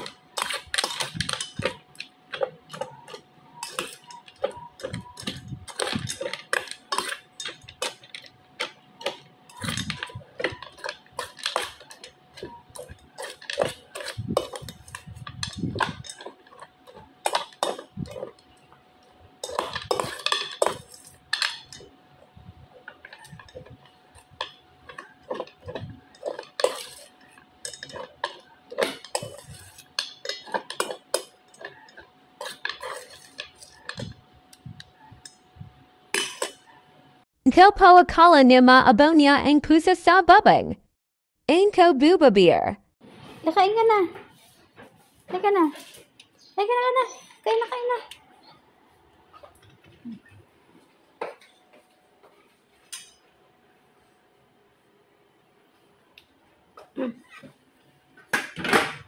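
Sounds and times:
metal spoon scraping a steel bowl: 0.0 - 18.7, 19.4 - 22.0, 22.7 - 34.2, 36.2 - 36.7.

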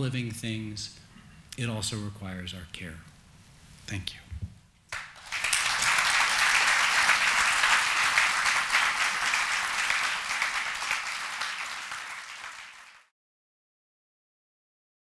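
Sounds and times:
audience applauding: 4.9 - 13.1.

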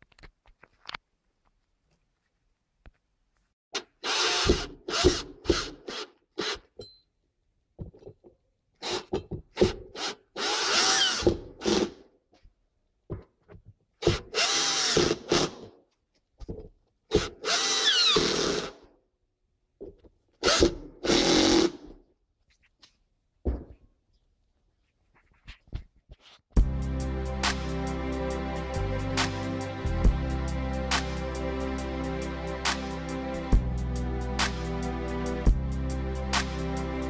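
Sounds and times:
power drill driving screws: 3.8 - 6.7, 8.8 - 12.0, 14.0 - 15.8, 17.1 - 18.9, 20.4 - 22.0.

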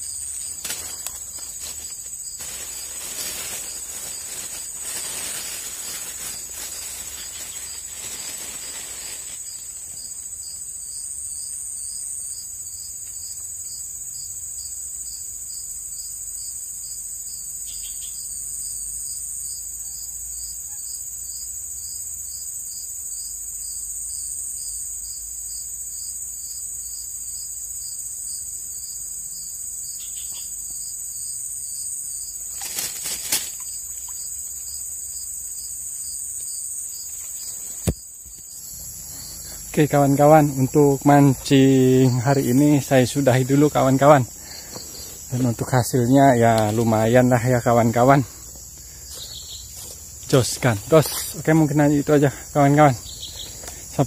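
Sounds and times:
insects buzzing and trilling: 0.0 - 54.0.

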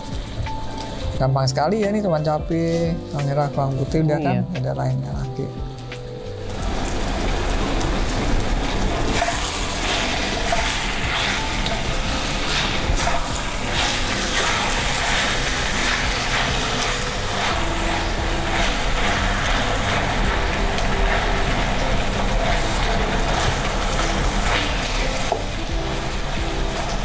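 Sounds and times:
chillies sizzling in hot oil: 0.0 - 4.1, 4.8 - 27.0
wooden spatula scraping a wok: 9.1 - 25.5.

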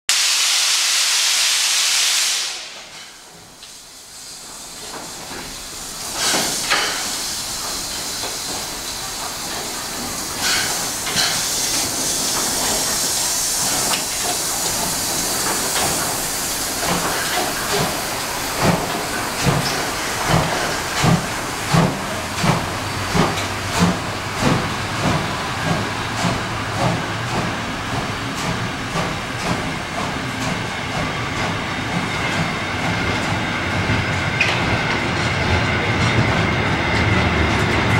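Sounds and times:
steam hissing: 0.1 - 35.8
steam locomotive exhaust chuffs: 0.1 - 37.9.

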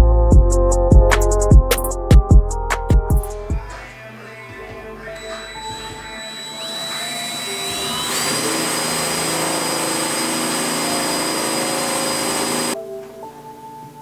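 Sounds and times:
cordless drill boring through metal: 5.2 - 12.8.

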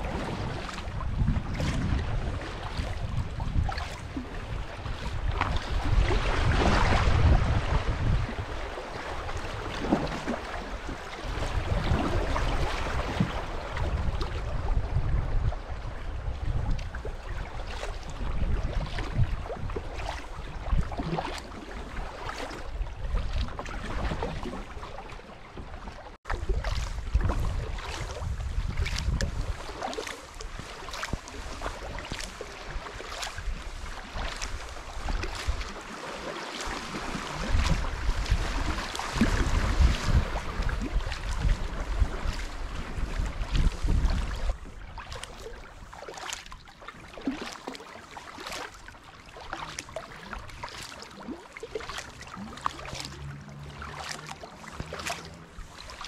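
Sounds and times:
wind buffeting microphone: 0.0 - 21.2, 25.6 - 35.8, 36.9 - 45.9
kayak paddle splashing: 0.0 - 56.0
river current rippling: 0.0 - 56.0.

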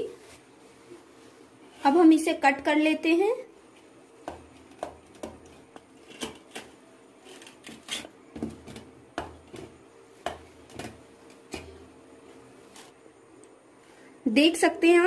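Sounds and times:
knife slicing pizza on metal plate: 6.0 - 8.9.

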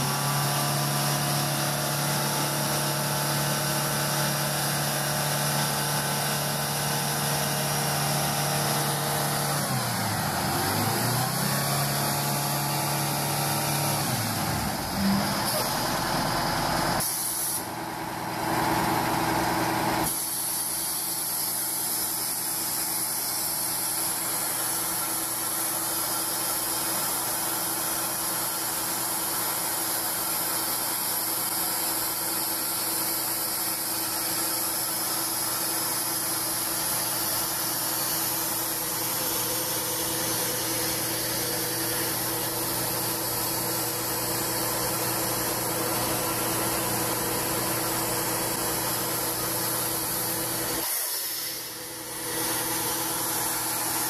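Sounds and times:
loud hiss: 0.0 - 16.0, 16.9 - 17.7, 20.0 - 54.0
truck diesel engine running: 0.0 - 17.0, 28.2 - 50.8.

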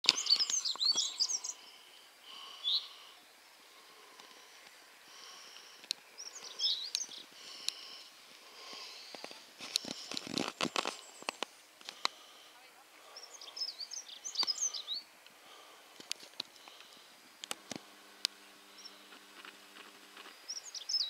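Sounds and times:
songbirds chirping: 0.0 - 21.0
footsteps on gravel: 8.7 - 12.1.

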